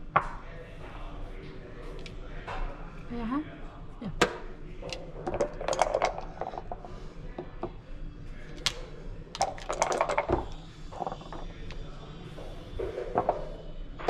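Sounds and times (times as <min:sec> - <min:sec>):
dice rattling in a cup: 0:04.9 - 0:06.8, 0:08.5 - 0:11.8
dice thrown onto board: 0:08.5 - 0:11.4.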